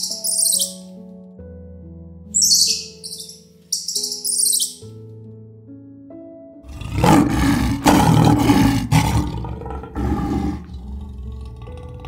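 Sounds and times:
background music with held notes: 0.0 - 12.0
lion roaring: 6.7 - 12.0.

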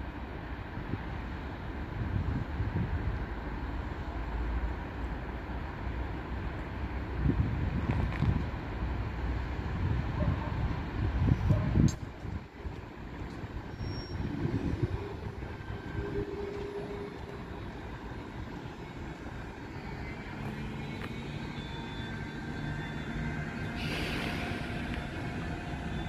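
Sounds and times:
freight train rumble and hum: 0.0 - 26.0
train wheels on rails: 5.7 - 26.0.

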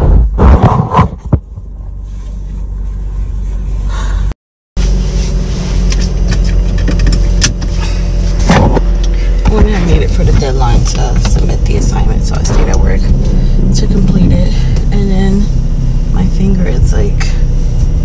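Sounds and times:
car road and engine rumble: 0.0 - 18.0.

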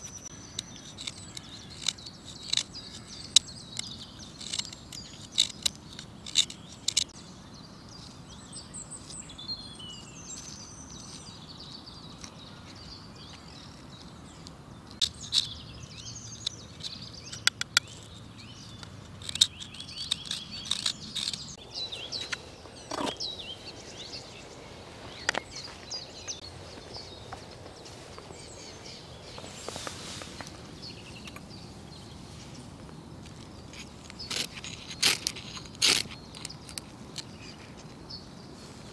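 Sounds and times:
birds chirping: 0.0 - 38.9
knife scraping driftwood: 16.3 - 23.2, 33.6 - 37.9.

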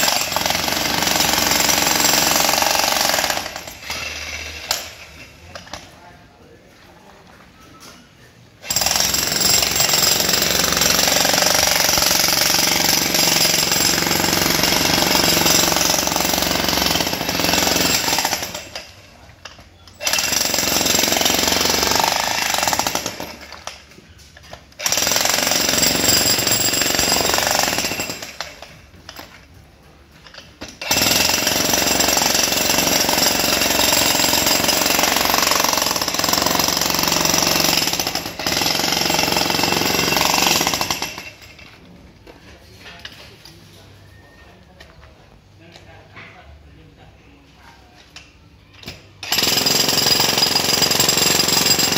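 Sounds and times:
demolition hammer pounding concrete: 0.0 - 5.0, 8.7 - 19.0, 20.0 - 23.7, 24.8 - 29.2, 30.6 - 41.5, 49.2 - 51.9.

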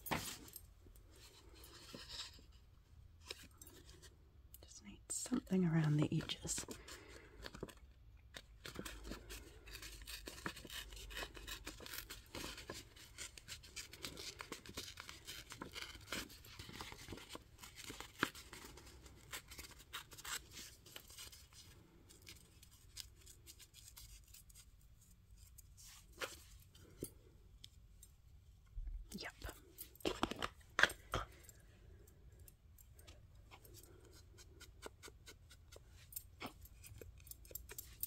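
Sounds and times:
paper tearing and rustling: 8.4 - 24.6.

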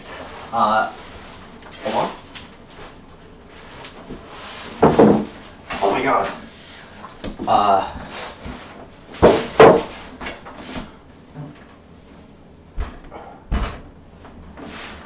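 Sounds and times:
computer case clunks: 12.8 - 13.9.

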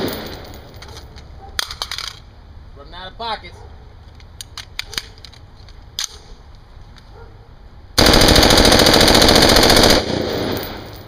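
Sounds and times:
magazine click: 4.1 - 6.2.

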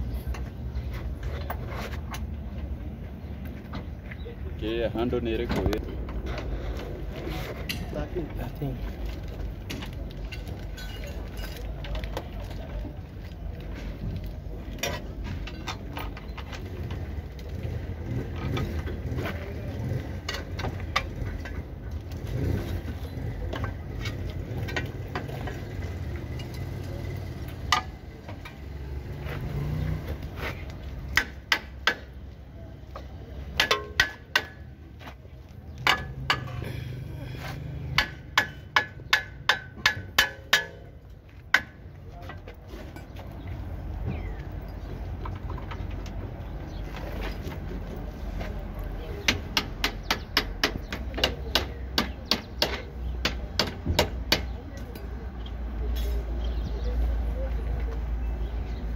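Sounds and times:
hand tools clinking and scraping: 0.0 - 2.8, 5.4 - 49.3.

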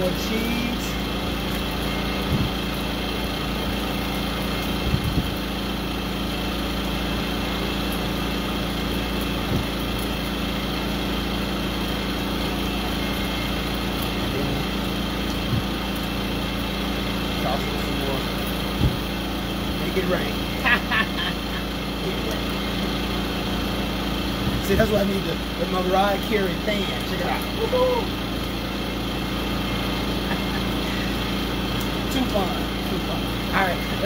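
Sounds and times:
motor humming: 0.0 - 34.0.

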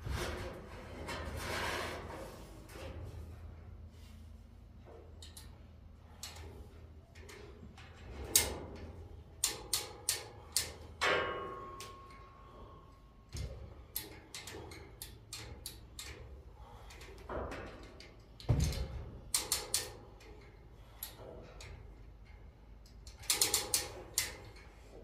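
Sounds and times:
metallic chain clanks and clicks: 16.9 - 24.8.

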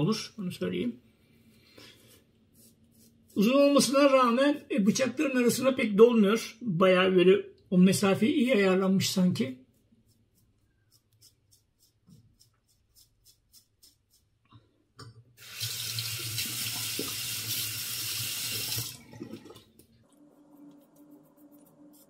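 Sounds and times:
tap running into sink: 15.8 - 17.6.

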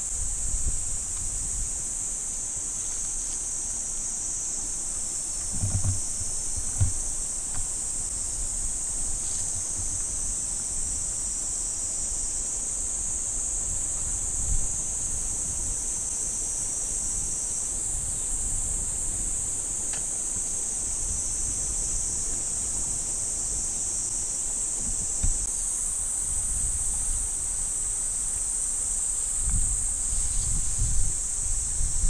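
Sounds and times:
wind rumble on microphone: 0.0 - 2.1, 5.4 - 11.3, 13.5 - 16.0, 17.0 - 19.8, 24.7 - 25.5, 26.1 - 27.8, 29.2 - 32.0
insects chorus: 0.0 - 32.0.

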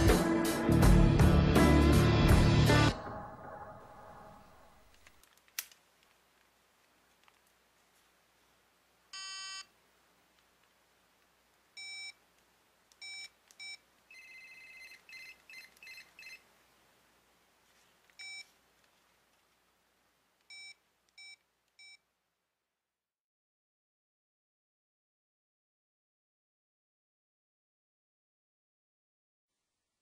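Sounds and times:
phone key-press beeps: 13.0 - 16.4, 18.2 - 18.5, 20.5 - 22.0.

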